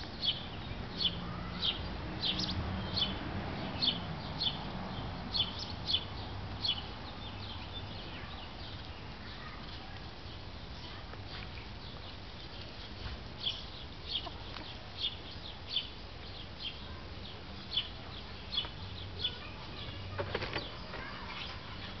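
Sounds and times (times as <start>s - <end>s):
bird chirping: 0.0s - 9.6s, 10.2s - 22.0s.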